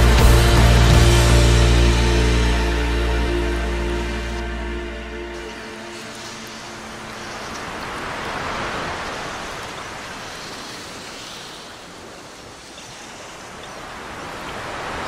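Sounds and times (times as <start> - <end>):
waves breaking on shore: 3.5 - 15.0.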